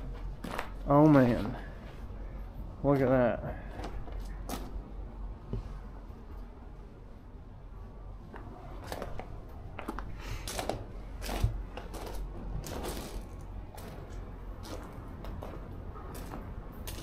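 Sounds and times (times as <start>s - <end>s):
footsteps crunching on gravel: 9.8s - 17.0s.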